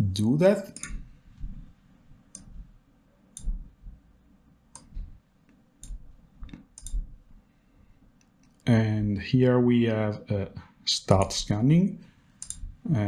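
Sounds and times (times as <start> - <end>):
computer mouse clicks: 2.3 - 2.6, 3.3 - 3.7, 4.7 - 5.1, 5.8 - 7.1, 12.4 - 12.7.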